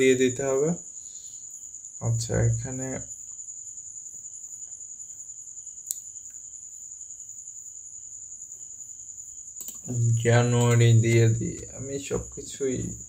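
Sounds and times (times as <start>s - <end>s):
faint room noise: 0.0s - 13.0s
sharp click: 9.6s - 11.7s.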